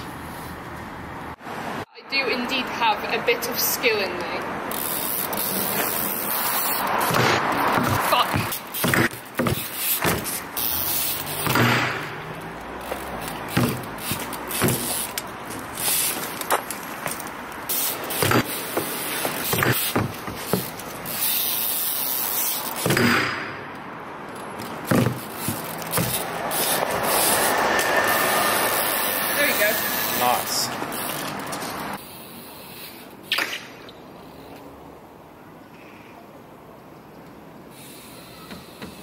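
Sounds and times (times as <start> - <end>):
bike tyres rolling on concrete: 0.0 - 1.7, 2.5 - 34.8, 37.0 - 39.0
bike dropping and landing: 4.7 - 23.7, 24.4 - 27.5
bike peg scraping ledge: 12.8 - 21.6, 24.7 - 27.4.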